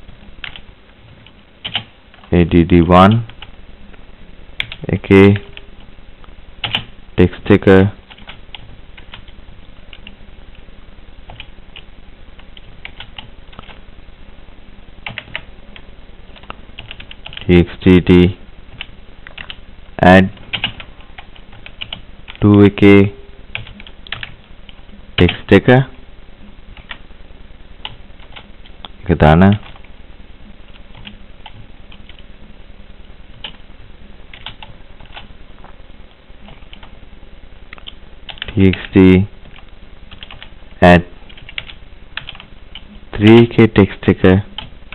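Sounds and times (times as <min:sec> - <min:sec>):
typing on computer keyboard: 0:01.6 - 0:02.3.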